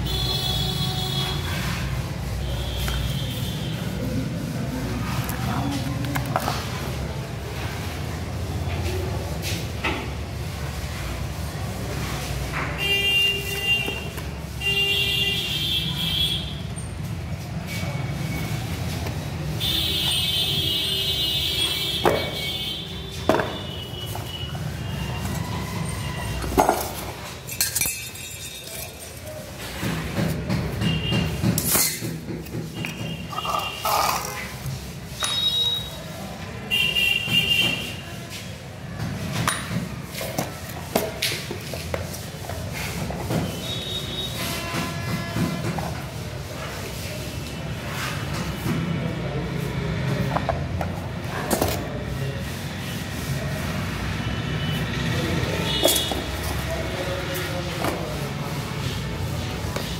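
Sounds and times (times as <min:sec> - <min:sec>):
vehicle horn: 0:00.0 - 0:01.8, 0:12.8 - 0:16.6.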